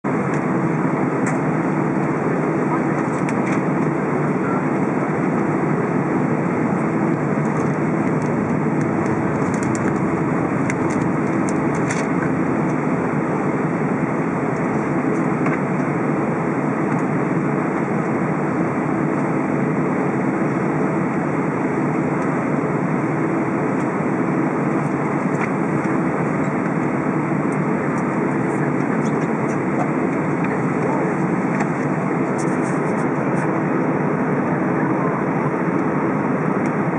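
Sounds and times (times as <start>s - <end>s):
jet engines at low power: 0.0s - 36.9s
cabin air hum: 5.5s - 15.2s.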